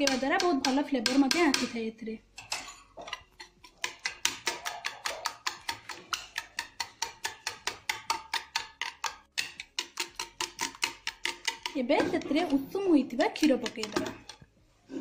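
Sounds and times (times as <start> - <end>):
whisk clicking against plastic bowl: 3.8 - 11.9, 13.1 - 14.3.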